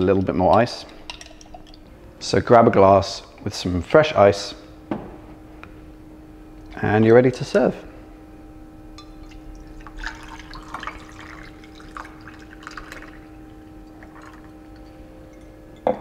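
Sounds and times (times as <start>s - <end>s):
steady low hum: 0.0s - 16.0s
coffee pouring and splashing: 0.5s - 1.9s, 9.0s - 16.0s
ice clinking in glass: 13.9s - 16.0s.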